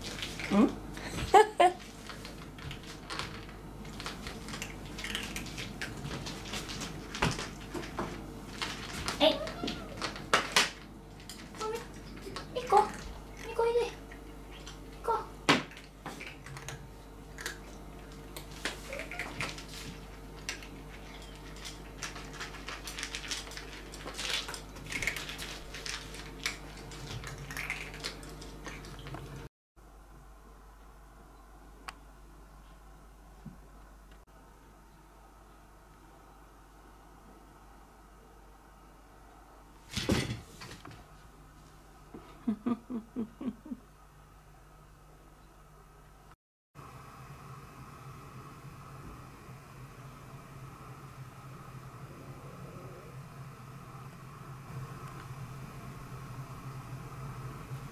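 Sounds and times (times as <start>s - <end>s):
cats crunching dry kibble: 0.0s - 0.5s, 1.7s - 15.0s, 15.7s - 29.3s
low room hum: 0.0s - 57.9s.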